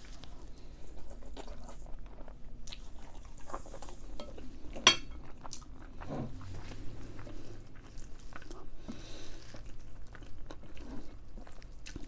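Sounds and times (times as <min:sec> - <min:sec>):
close-up chewing: 0:00.0 - 0:12.0
fork clinking against bowl: 0:04.2 - 0:05.2.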